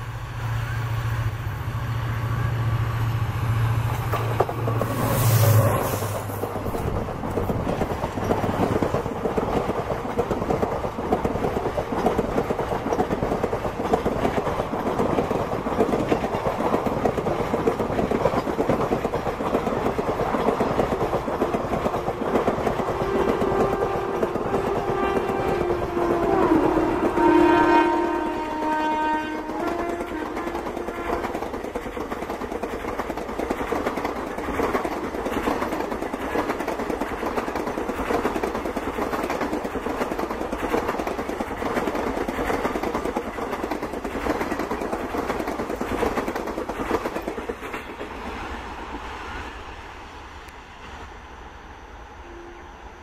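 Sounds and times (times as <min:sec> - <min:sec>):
train wheels clattering over joints: 0:03.9 - 0:27.2, 0:29.4 - 0:48.2
train horn: 0:22.0 - 0:31.4, 0:52.2 - 0:53.0.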